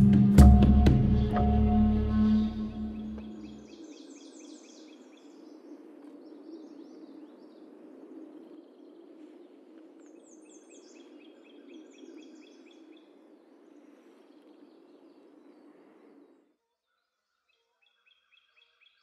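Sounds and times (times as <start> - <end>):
songbird singing high notes: 0.0 - 4.6.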